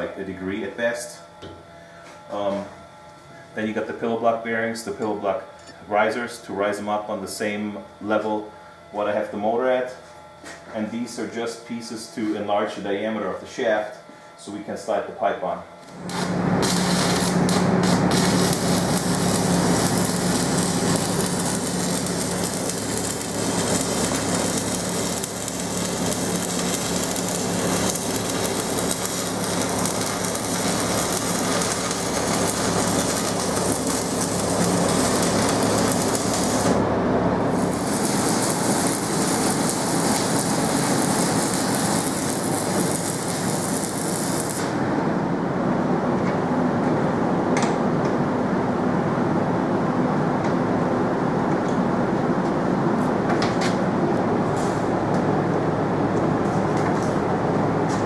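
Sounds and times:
electric arc welding: 15.4s - 44.8s.

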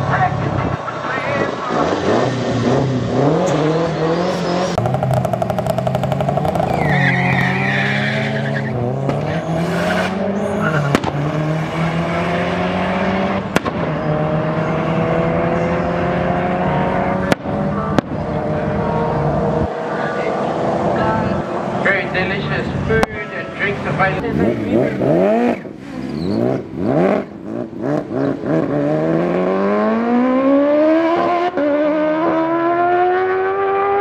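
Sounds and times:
car engines revving: 0.0s - 34.0s
tyre squeal: 6.5s - 10.9s, 25.5s - 26.6s.

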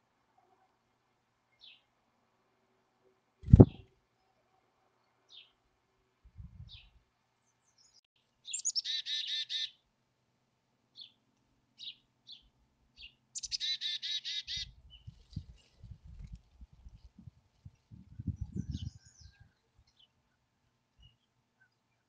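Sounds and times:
low thumps: 3.4s - 3.8s
chickadee calling: 8.5s - 9.8s, 13.4s - 14.8s.

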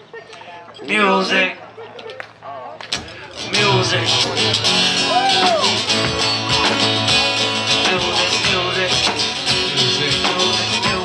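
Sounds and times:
drum kit beat: 3.0s - 11.0s
acoustic guitar strumming: 3.2s - 11.0s.

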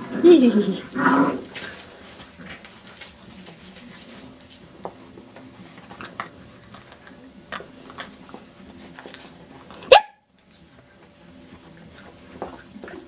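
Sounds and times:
puppy chewing rope toy: 1.2s - 9.9s.

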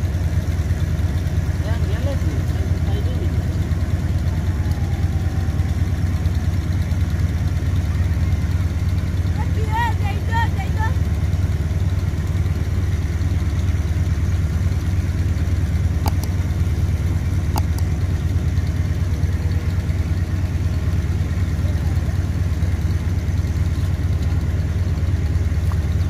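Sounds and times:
engine idling: 0.0s - 26.0s
light clicks: 16.0s - 16.4s, 17.5s - 17.9s.

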